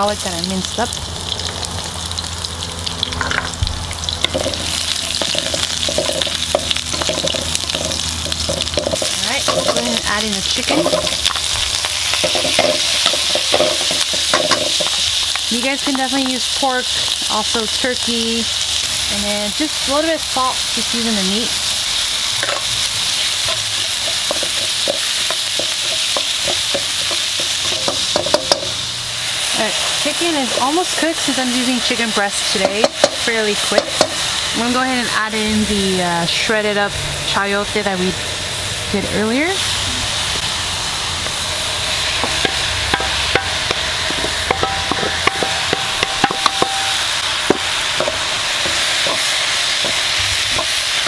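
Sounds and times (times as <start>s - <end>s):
chicken sizzling in frying pan: 0.0s - 51.0s
metal bowl clinking on pan: 4.3s - 10.1s, 42.2s - 49.2s
wooden spatula stirring food: 5.2s - 16.3s, 23.4s - 28.7s, 42.2s - 51.0s
wooden spatula scraping pan: 42.2s - 50.8s.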